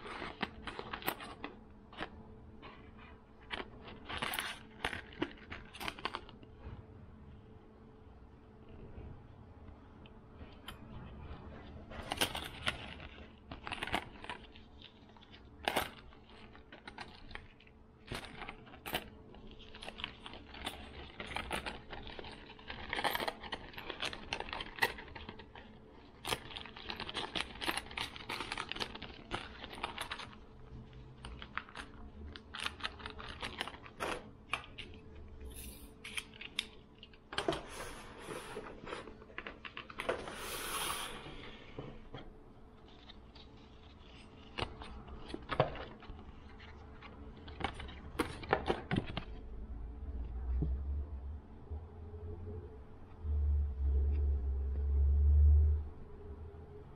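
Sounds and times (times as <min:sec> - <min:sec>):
small hard items clicking and rattling: 0:00.0 - 0:02.8, 0:03.4 - 0:06.5, 0:10.4 - 0:37.8, 0:42.8 - 0:49.6.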